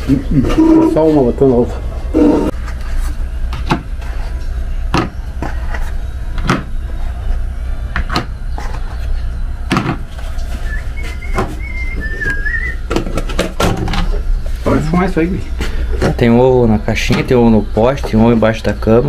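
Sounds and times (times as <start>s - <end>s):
steady low hum: 0.0s - 19.0s
faint wavering whistle: 10.4s - 12.9s.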